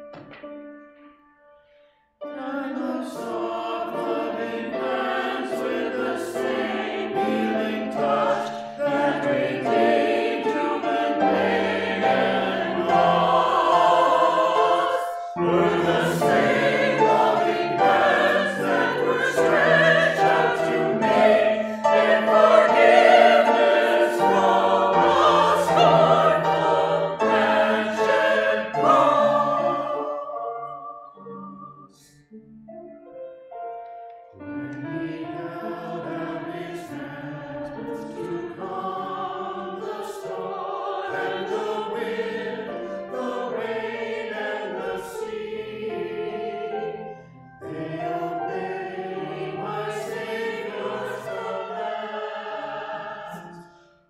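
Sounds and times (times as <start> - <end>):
piano accompaniment: 0.0 - 54.0
small choir singing: 2.3 - 32.4, 34.4 - 54.0.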